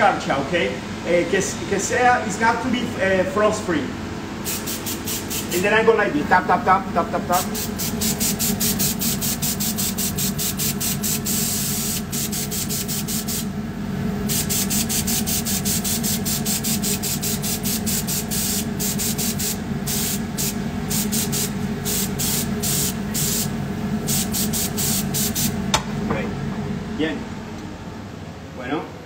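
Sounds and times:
low machine hum: 0:00.0 - 0:29.0
airbrush spraying hisses: 0:04.4 - 0:05.6, 0:07.3 - 0:13.5, 0:14.3 - 0:25.6.

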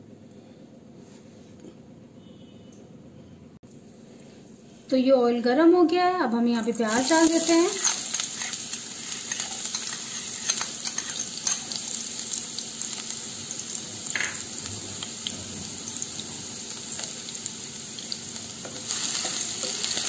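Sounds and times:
onions sizzling in oil: 0:06.6 - 0:20.0.

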